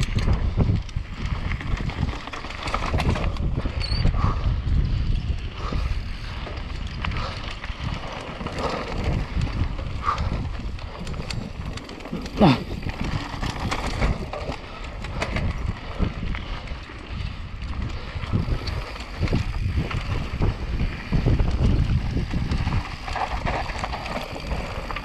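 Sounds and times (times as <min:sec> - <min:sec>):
bike rattling: 0:00.0 - 0:25.0
wind buffeting microphone: 0:00.0 - 0:25.0
tyre noise on dirt: 0:05.4 - 0:25.0.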